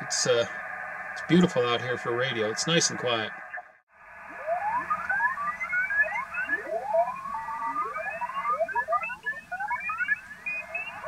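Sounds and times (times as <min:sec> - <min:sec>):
receiver hiss: 0:00.0 - 0:11.0
morse code signals: 0:04.3 - 0:11.0.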